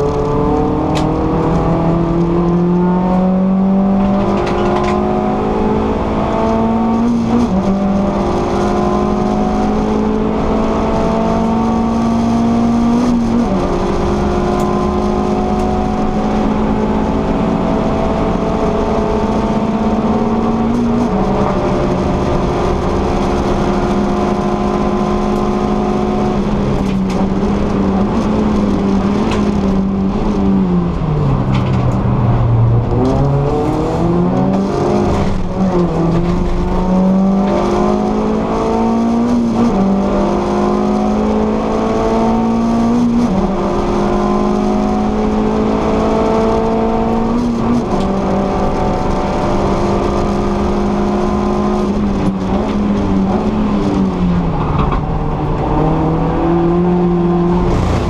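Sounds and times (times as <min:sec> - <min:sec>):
car engine at high revs: 0:00.0 - 0:58.0
road and wind noise: 0:00.0 - 0:58.0.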